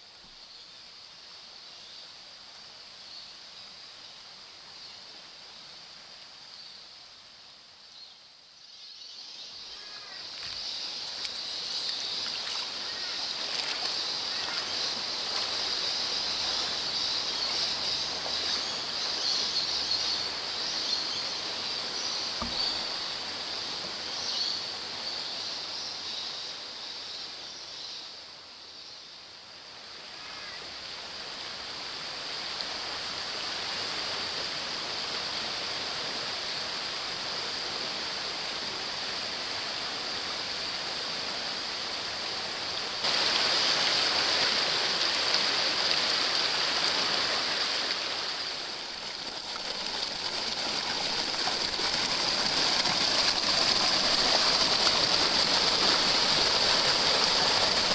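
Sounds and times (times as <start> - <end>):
creek water rushing over rocks: 9.2 - 27.4, 29.4 - 57.9
feet splashing in water: 10.3 - 15.7.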